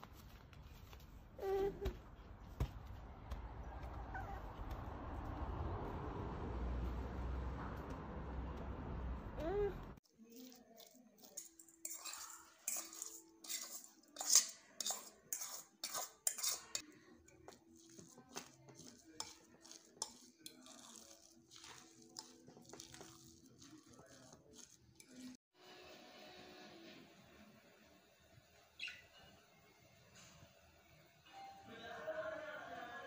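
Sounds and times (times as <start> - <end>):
stirring and mashing potato: 10.0 - 25.4
metal spoon clinking on bowls: 10.2 - 25.4.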